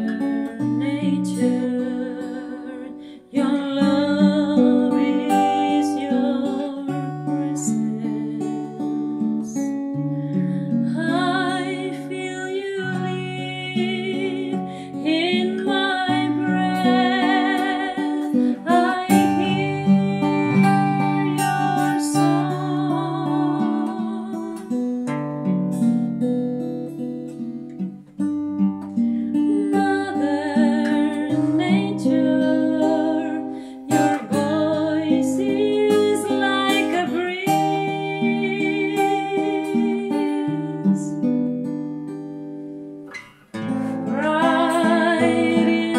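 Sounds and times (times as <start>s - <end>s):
woman singing: 0.0s - 25.0s, 29.3s - 41.4s, 43.8s - 45.9s
acoustic guitar: 0.0s - 45.9s.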